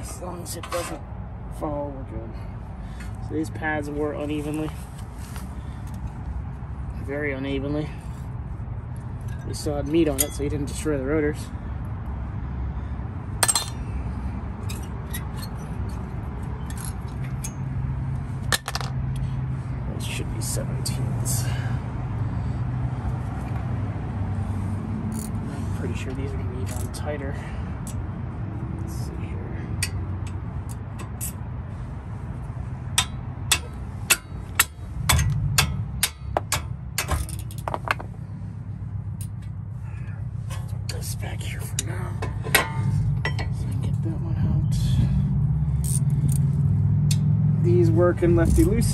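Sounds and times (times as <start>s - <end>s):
brake pad clinking on metal: 32.9s - 38.1s, 40.4s - 43.6s.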